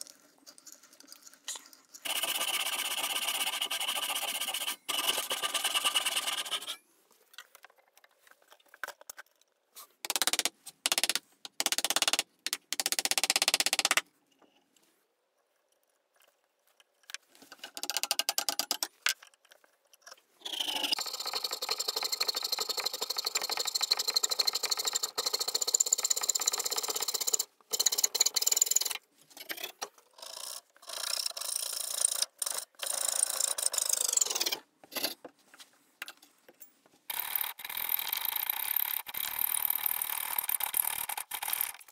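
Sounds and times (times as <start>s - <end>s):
coping saw strokes: 2.0s - 6.8s
handsaw strokes: 2.0s - 6.8s.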